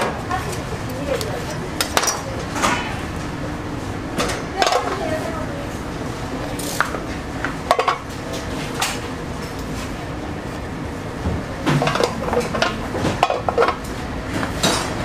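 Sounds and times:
kitchen background noise: 0:00.0 - 0:15.0
metal kitchenware clattering: 0:11.7 - 0:13.8.

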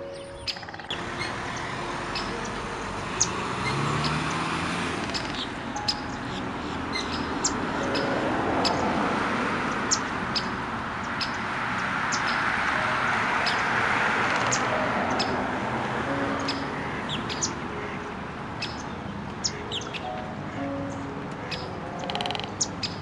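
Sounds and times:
small birds chirping: 0:00.0 - 0:08.9, 0:09.7 - 0:12.6, 0:16.4 - 0:18.0, 0:18.6 - 0:23.0.

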